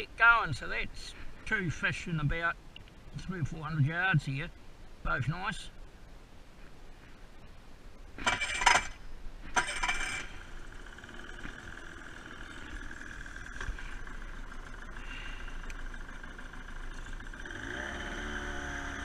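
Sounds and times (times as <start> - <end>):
outboard motor starting and idling: 8.2 - 19.0.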